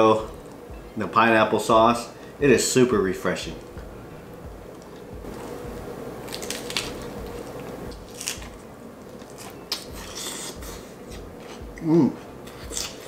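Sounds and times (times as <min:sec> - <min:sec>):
crisp wet chewing: 0:06.2 - 0:11.6, 0:12.4 - 0:13.0.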